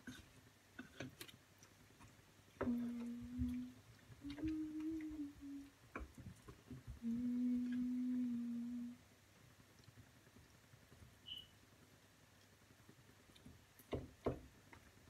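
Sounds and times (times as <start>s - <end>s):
person humming low notes: 2.6s - 5.8s, 7.0s - 9.0s
wooden spoon knocking on skillet: 13.9s - 14.8s.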